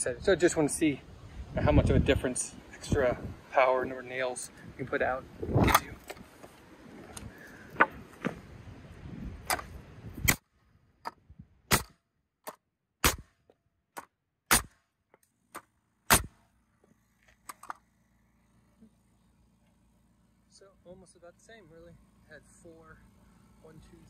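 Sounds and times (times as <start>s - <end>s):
nail gun firing: 9.4s - 10.5s, 11.7s - 14.9s, 15.5s - 16.4s
air compressor humming: 15.4s - 24.0s.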